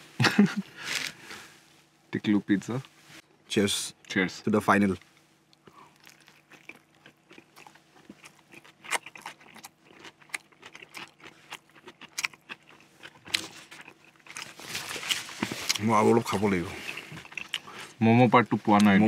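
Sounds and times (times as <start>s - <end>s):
faint steady hum: 0.0s - 19.0s
chewing crunchy food: 5.0s - 19.0s.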